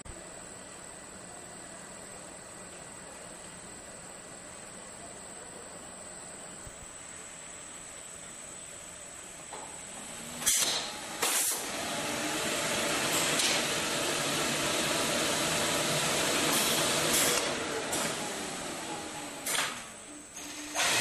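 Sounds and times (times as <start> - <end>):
rushing hiss through press: 9.2 - 18.6
sharp hisses of released air: 10.4 - 11.6.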